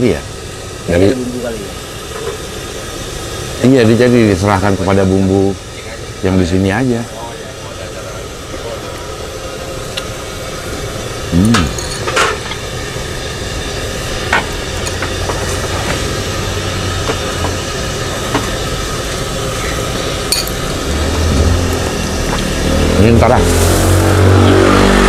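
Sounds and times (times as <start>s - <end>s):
street background noise: 0.0s - 25.0s
vehicle engine: 13.2s - 25.0s.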